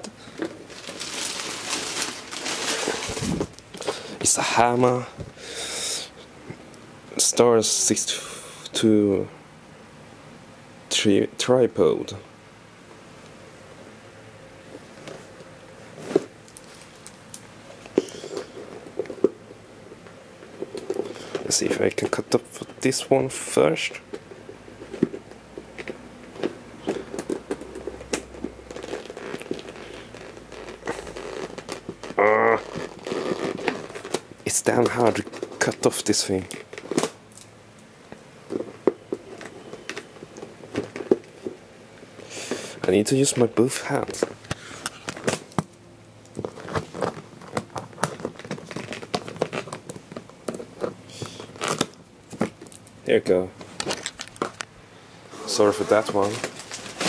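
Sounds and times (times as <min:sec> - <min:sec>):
plastic packaging crinkling: 0:00.0 - 0:04.2, 0:16.0 - 0:17.4, 0:24.9 - 0:37.4, 0:46.3 - 0:52.9, 0:53.6 - 0:54.7, 0:55.5 - 0:57.0.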